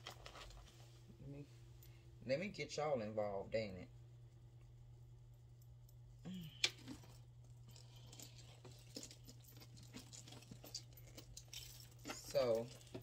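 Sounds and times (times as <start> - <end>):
packaging rustling: 0.0 - 0.8
low steady hum: 0.0 - 13.0.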